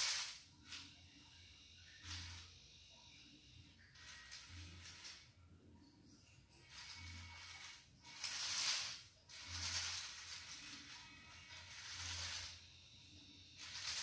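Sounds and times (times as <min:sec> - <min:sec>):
plastic tracks and gears rattling: 0:00.0 - 0:00.8, 0:06.7 - 0:12.6, 0:13.6 - 0:14.0.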